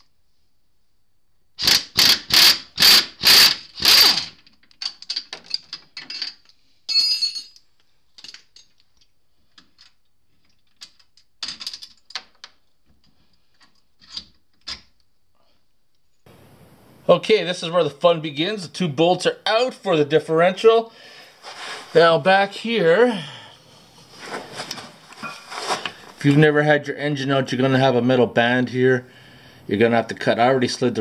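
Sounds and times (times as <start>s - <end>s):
hand ratchet clicking: 1.6s - 5.6s.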